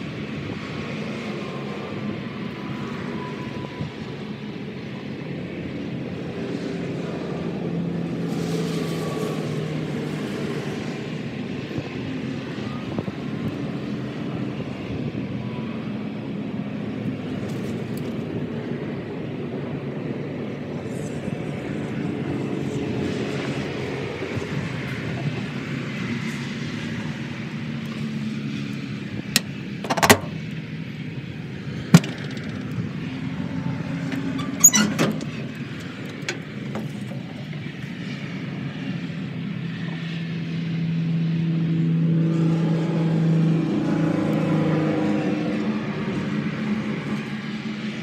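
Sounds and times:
metal door clanks: 0:29.4 - 0:30.4, 0:34.2 - 0:35.4.

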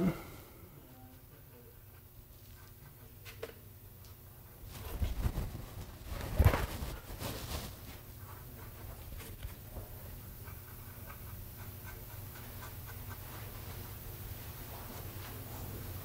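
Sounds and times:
low hum: 0:00.0 - 0:01.9
paintbrush scratching clay: 0:10.4 - 0:14.0.

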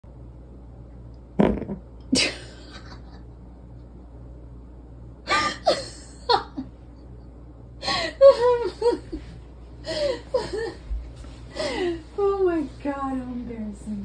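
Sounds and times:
woman laughing: 0:01.4 - 0:03.3, 0:05.3 - 0:10.9.

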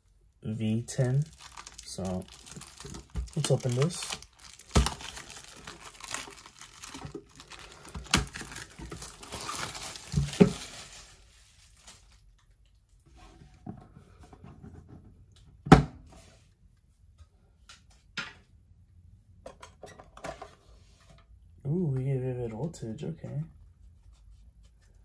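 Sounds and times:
plastic wrap crinkling and tearing: 0:00.9 - 0:12.4.

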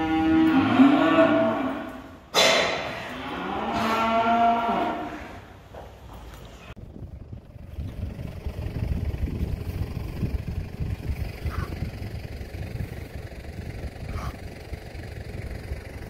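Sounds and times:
wind buffeting microphone: 0:06.8 - 0:16.0.

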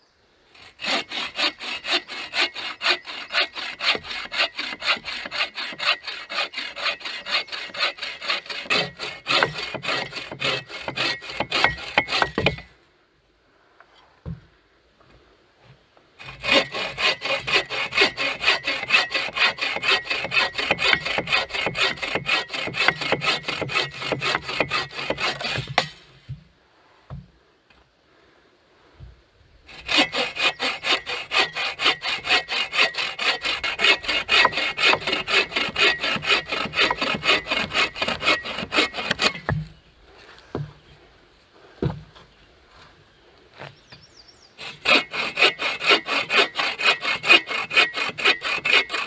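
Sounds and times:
bow saw cutting log: 0:00.6 - 0:12.7, 0:16.2 - 0:26.1, 0:29.7 - 0:39.7, 0:44.6 - 0:49.0.

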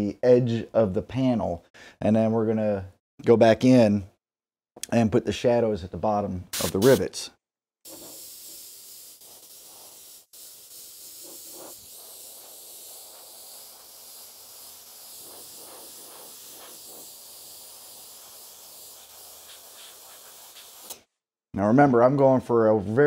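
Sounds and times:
airbrush spraying hiss: 0:06.6 - 0:07.1, 0:07.9 - 0:21.1.

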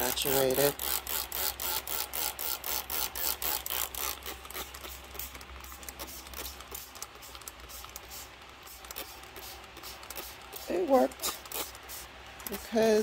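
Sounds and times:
spray bottle squirts: 0:01.3 - 0:12.7.

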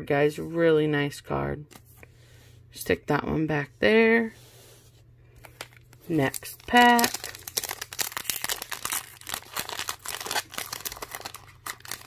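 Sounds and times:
foil wrapper crinkling and tearing: 0:05.6 - 0:12.0.

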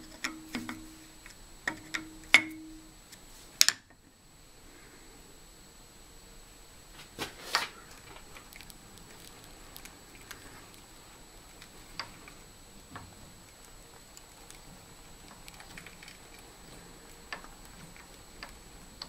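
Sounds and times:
faint high whine: 0:00.0 - 0:19.0
light clicks and ticks: 0:07.9 - 0:19.0.

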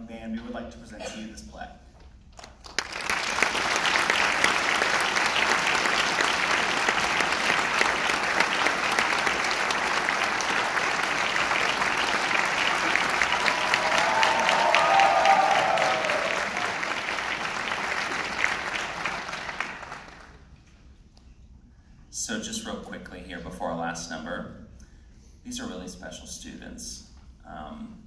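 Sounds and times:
audience applauding: 0:02.4 - 0:20.5.

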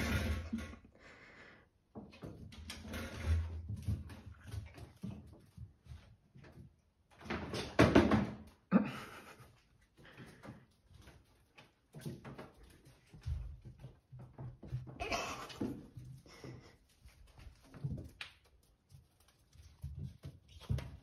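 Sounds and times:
cats knocking and bumping: 0:07.1 - 0:08.7.

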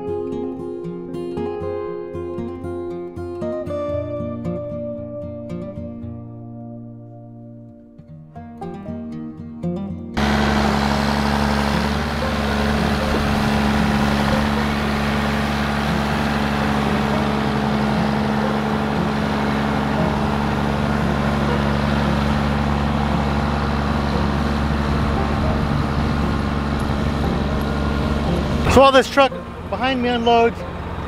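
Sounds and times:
tractor diesel engine running: 0:10.2 - 0:31.0.

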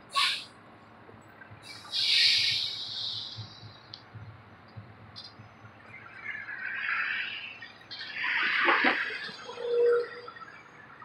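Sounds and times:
diesel engine running low: 0:00.0 - 0:09.6
light ticks: 0:03.4 - 0:05.6.

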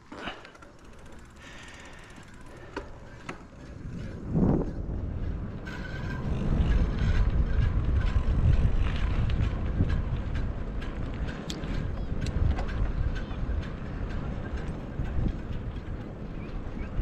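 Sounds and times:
wind rushing over microphone: 0:03.5 - 0:17.0.

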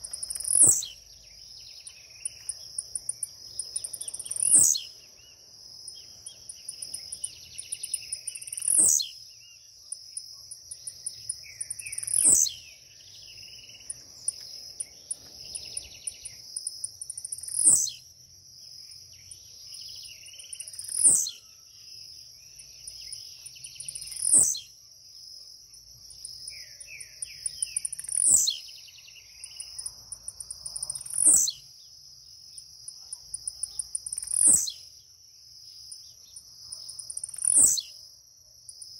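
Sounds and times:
insect chirring: 0:00.0 - 0:38.9.

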